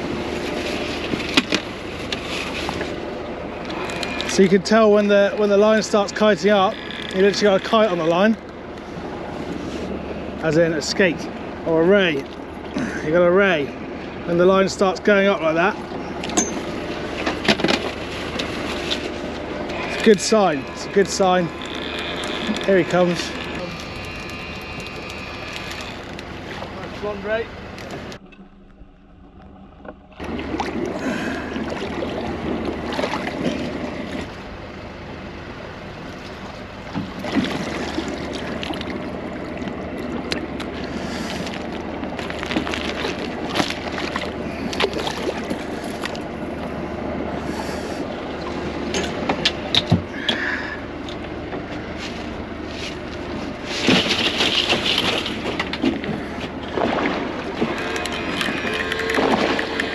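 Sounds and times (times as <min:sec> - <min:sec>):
water sloshing against boat: 0:00.0 - 0:59.9.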